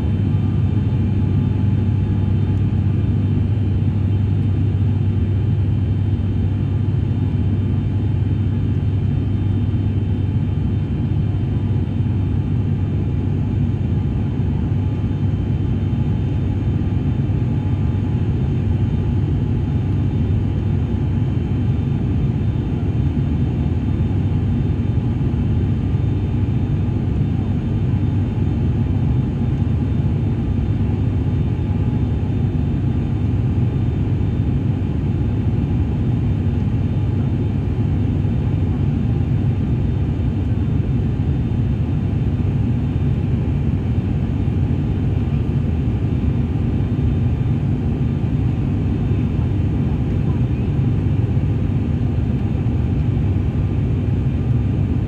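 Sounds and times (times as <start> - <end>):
turboprop cabin drone: 0.0 - 55.0.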